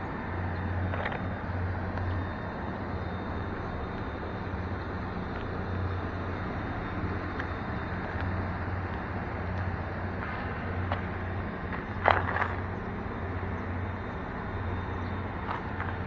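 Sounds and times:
low hum: 0:00.0 - 0:16.0
faint ticks: 0:07.3 - 0:11.1.

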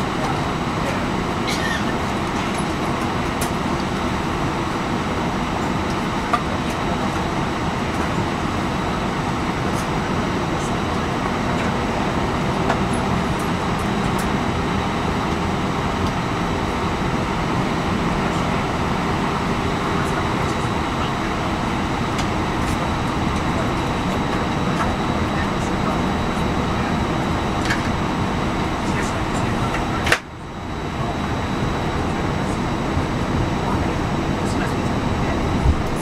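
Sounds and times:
air-conditioning rush: 0:00.0 - 0:36.0
jet engines idling: 0:00.0 - 0:36.0.

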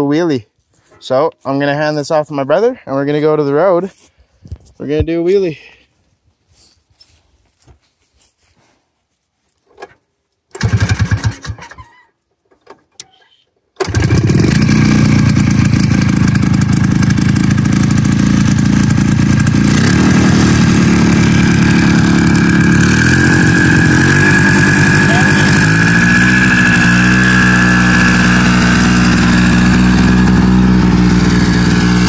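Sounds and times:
engine pull-started and running: 0:09.8 - 0:11.9, 0:13.8 - 0:32.0.

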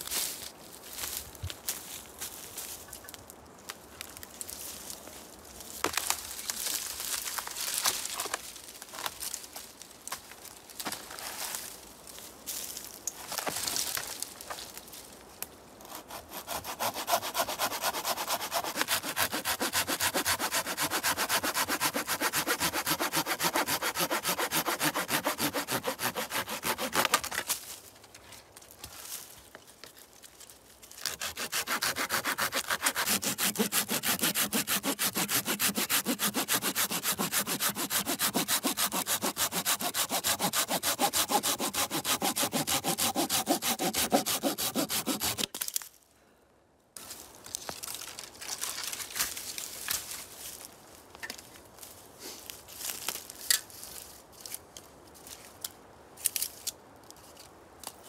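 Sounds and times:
hand saw cutting branch: 0:15.9 - 0:27.5, 0:31.0 - 0:45.6.

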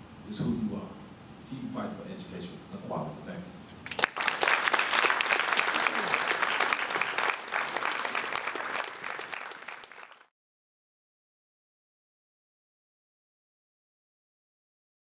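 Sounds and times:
audience applauding: 0:03.8 - 0:10.3.

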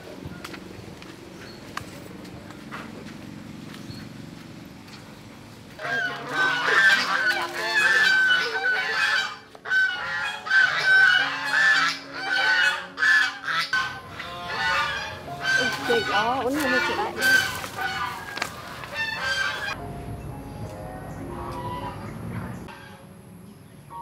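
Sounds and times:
geese honking: 0:05.8 - 0:19.8, 0:20.9 - 0:23.2.

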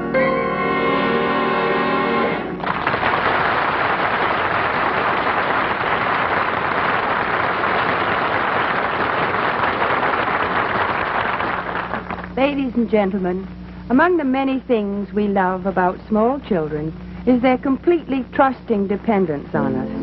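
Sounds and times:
orchestral chord: 0:00.0 - 0:02.6
audience applauding: 0:02.6 - 0:12.4.

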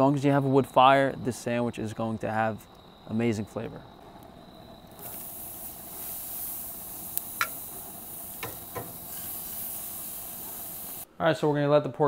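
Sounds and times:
meat sizzling on a grill: 0:04.8 - 0:11.1.

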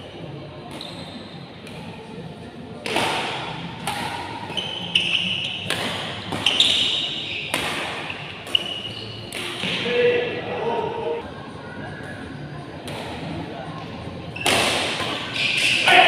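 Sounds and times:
rackets hitting shuttlecock: 0:02.8 - 0:09.9, 0:14.4 - 0:16.0.

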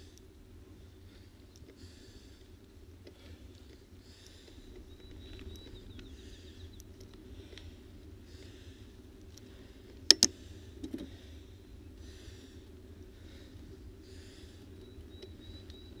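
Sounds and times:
steady low rumble: 0:00.0 - 0:16.0
person breathing hard: 0:00.9 - 0:04.8, 0:07.2 - 0:14.8
sharp clicks: 0:10.1 - 0:11.0.

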